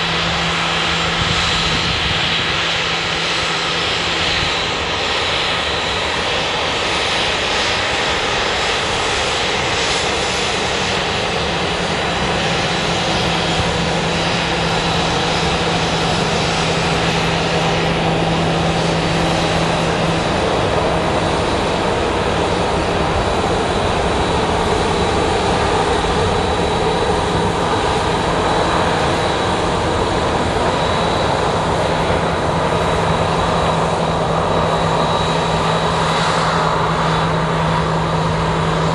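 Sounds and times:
jet engines roaring: 0:00.0 - 0:38.9.

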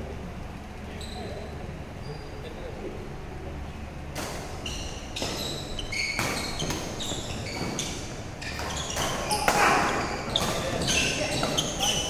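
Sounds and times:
shoes squeaking on court floor: 0:00.9 - 0:02.6, 0:04.3 - 0:12.0
racket hitting shuttlecock: 0:04.1 - 0:12.0.

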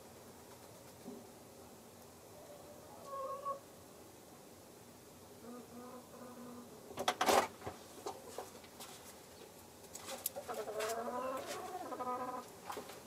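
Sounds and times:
hen clucking: 0:02.8 - 0:03.6, 0:10.1 - 0:12.6.

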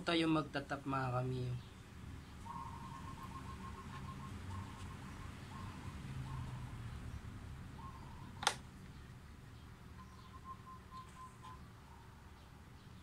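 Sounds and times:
faint high chirping: 0:01.5 - 0:13.0
sharp click: 0:08.4 - 0:08.7.

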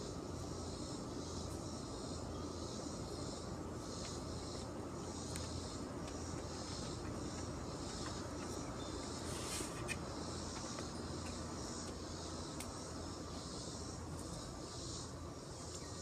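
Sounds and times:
low steady hum: 0:00.0 - 0:16.0
pulsing insect chorus: 0:00.0 - 0:16.0.

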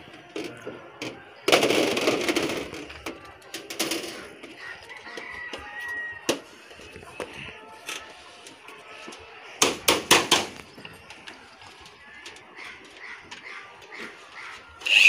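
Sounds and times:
rooster crowing: 0:04.6 - 0:06.4.

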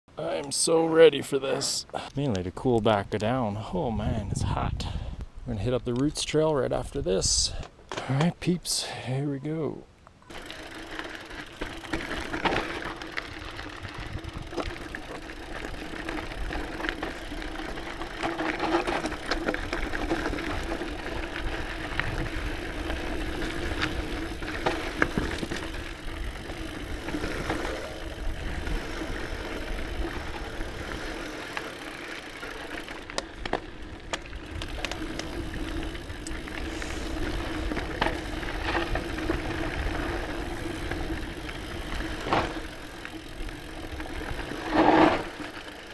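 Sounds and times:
bike chain and frame rattling: 0:10.3 - 0:45.9
bike tyres rumbling over dirt: 0:10.3 - 0:45.9.

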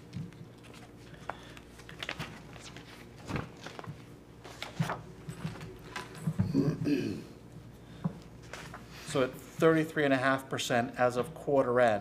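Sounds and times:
low room hum: 0:00.0 - 0:12.0
paper pages rustling: 0:00.2 - 0:06.4, 0:08.4 - 0:08.9.

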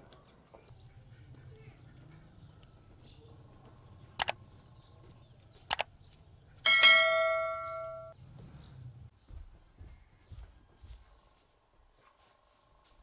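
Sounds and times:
sharp clicks: 0:04.2 - 0:04.4, 0:05.6 - 0:05.9
bell ding: 0:06.7 - 0:08.2.

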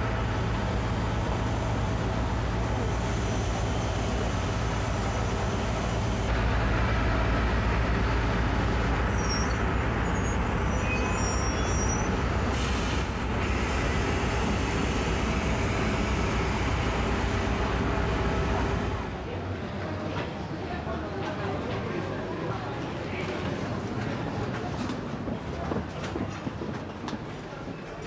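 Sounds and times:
engines idling: 0:00.0 - 0:10.8
short hiss of air: 0:12.5 - 0:13.3.

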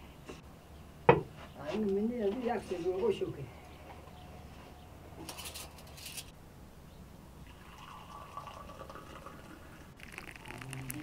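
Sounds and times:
tea pouring into a glass: 0:07.4 - 0:11.0.

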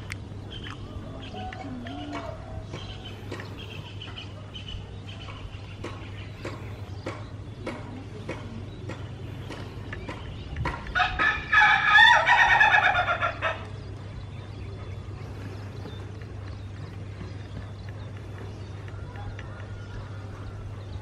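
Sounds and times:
rooster crowing: 0:11.0 - 0:13.6.

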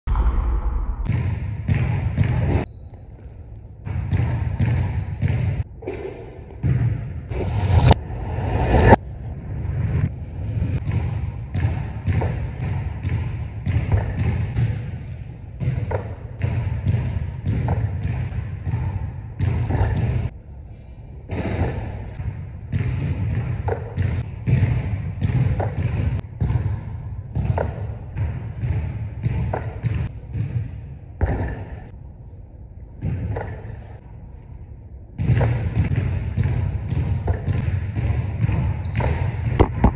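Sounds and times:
basketball dribbling on hardwood floor: 0:03.8 - 0:05.6, 0:06.6 - 0:07.1, 0:10.8 - 0:20.3, 0:22.7 - 0:31.5, 0:35.2 - 0:39.9.

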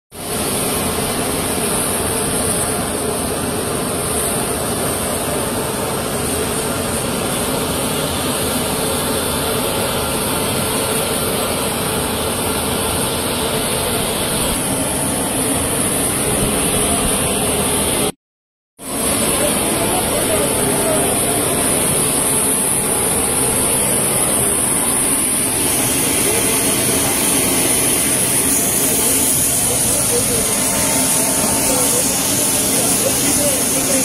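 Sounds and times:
loud engine noise: 0:00.2 - 0:18.2, 0:18.8 - 0:34.0
high-pitched hiss: 0:19.7 - 0:34.0.

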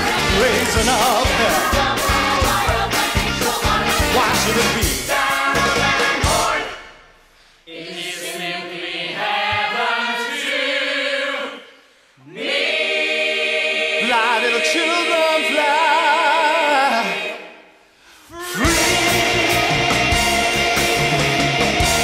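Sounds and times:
choir holding chords: 0:00.0 - 0:06.9, 0:12.3 - 0:17.6, 0:18.5 - 0:22.0.

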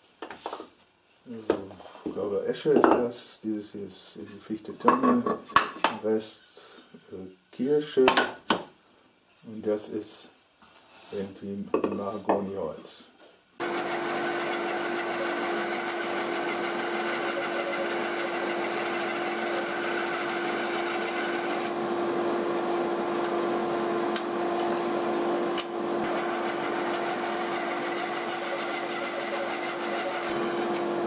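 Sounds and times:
bandsaw sawing wood: 0:13.6 - 0:31.0.

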